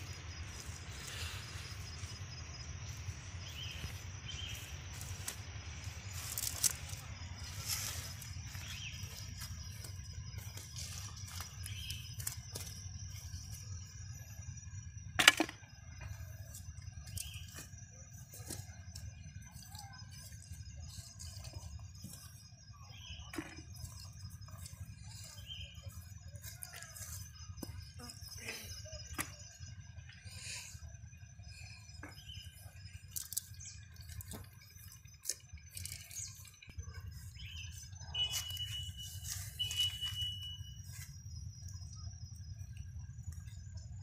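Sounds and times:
faint steady high tone: 15.7s - 44.0s.

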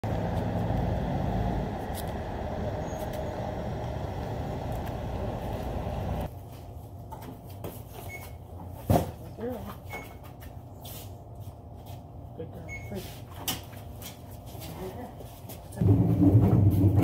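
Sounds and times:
road traffic rumble: 0.0s - 6.3s
vehicle engine running: 0.0s - 6.3s.

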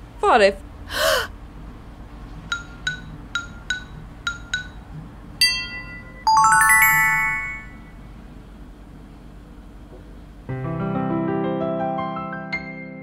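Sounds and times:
bright ding: 5.4s - 8.0s
shimmering chime cascade: 6.3s - 7.9s.

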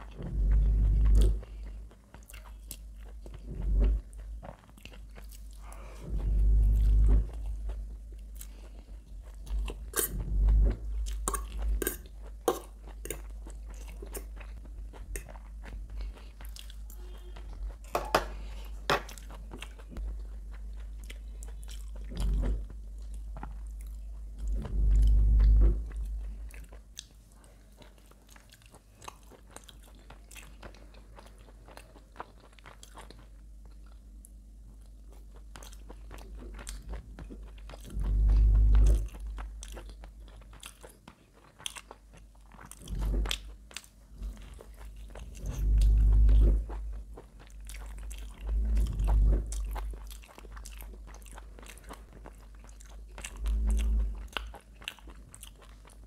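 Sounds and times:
chewing with wet mouth clicks: 0.0s - 3.4s, 34.8s - 56.0s.

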